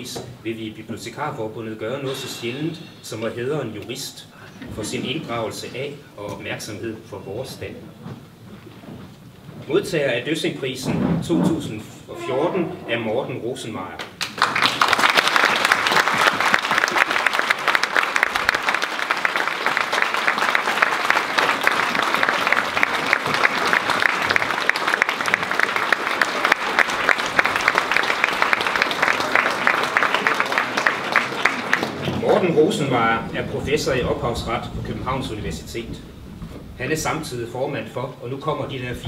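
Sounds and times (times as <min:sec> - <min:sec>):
audience applauding: 0:14.1 - 0:34.2.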